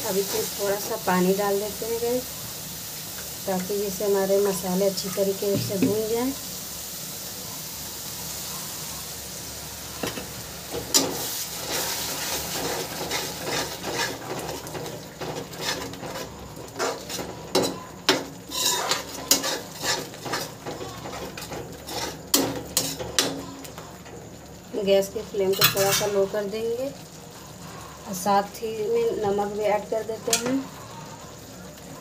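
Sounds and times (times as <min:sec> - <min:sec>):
water hissing in hot pan: 0:00.0 - 0:32.0
metal spatula scraping pan: 0:10.7 - 0:24.2, 0:25.5 - 0:26.2, 0:30.2 - 0:30.8.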